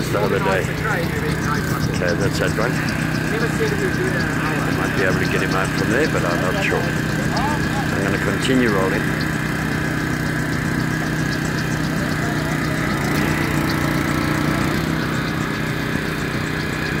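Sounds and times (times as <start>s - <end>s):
small petrol engine running: 0.0s - 17.0s.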